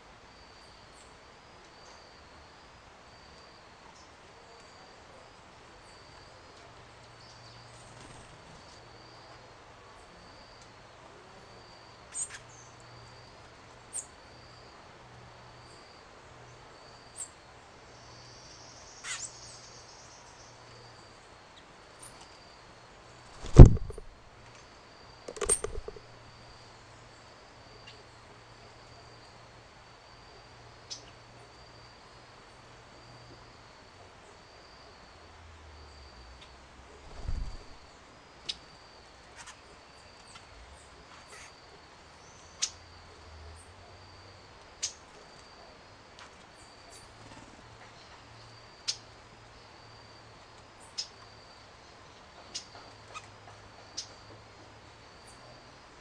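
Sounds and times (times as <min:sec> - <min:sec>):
high insect trill: 0:16.7 - 0:56.0
low hum: 0:23.3 - 0:24.2
knocks and clicks: 0:23.4 - 0:24.1, 0:25.3 - 0:26.0.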